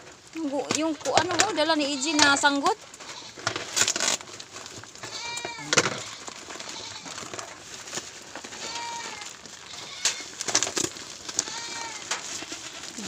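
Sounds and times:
plastic parcel crackling and rustling: 0.0s - 13.0s
goat bleating: 0.7s - 3.4s, 5.0s - 7.2s, 8.4s - 10.4s, 11.3s - 13.0s.

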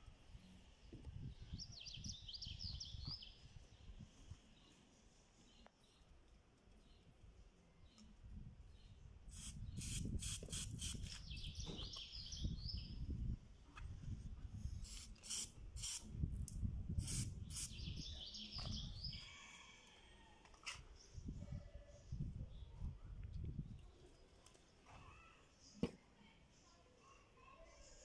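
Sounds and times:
aerosol can hissing puffs: 9.3s - 11.0s, 14.8s - 16.0s, 17.0s - 17.8s
birds chirping: 10.8s - 13.0s, 17.4s - 19.5s.

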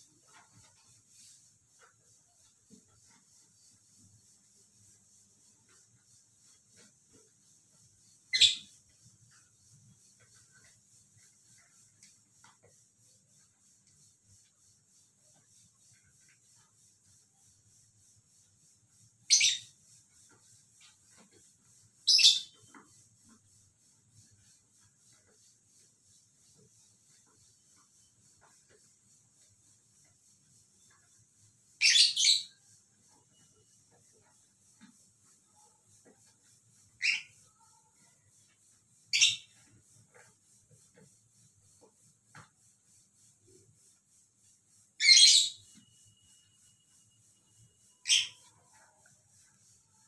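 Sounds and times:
soft bird sounds: 8.0s - 9.5s, 19.2s - 19.8s, 20.8s - 22.9s, 31.8s - 33.7s, 35.5s - 38.2s, 39.1s - 39.8s, 45.0s - 50.0s
cockatiel chirps: 8.3s - 8.7s, 37.0s - 37.4s, 48.0s - 48.5s.

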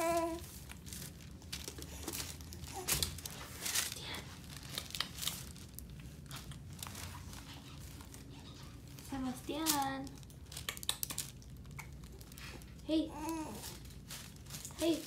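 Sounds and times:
clothing rustling: 0.0s - 10.0s
paper cover crinkling: 0.0s - 15.0s.

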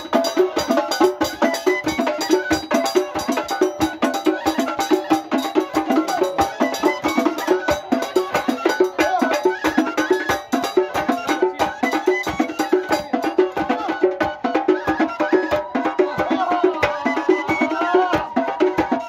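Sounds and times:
rapid clacking percussion: 0.0s - 19.0s
reed flute melody: 0.0s - 19.0s.

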